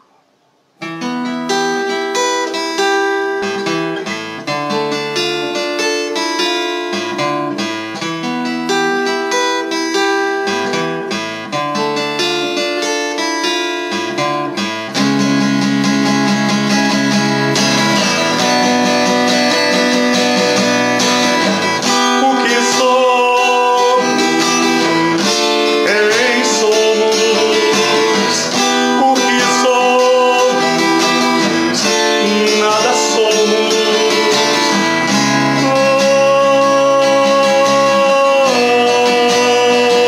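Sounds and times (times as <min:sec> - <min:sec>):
acoustic guitar strummed: 0:00.0 - 0:40.0
man singing: 0:17.7 - 0:40.0.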